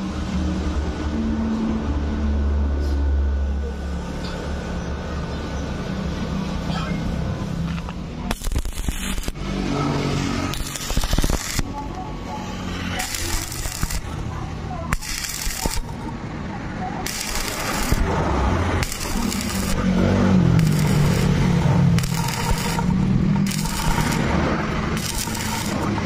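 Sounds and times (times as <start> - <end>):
welding arc crackling: 8.0 - 16.2, 17.0 - 26.0.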